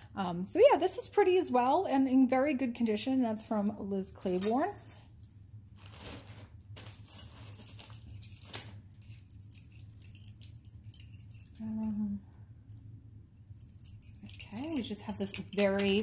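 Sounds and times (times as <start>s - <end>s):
metal jewelry jingling: 6.9s - 12.8s, 13.4s - 16.0s.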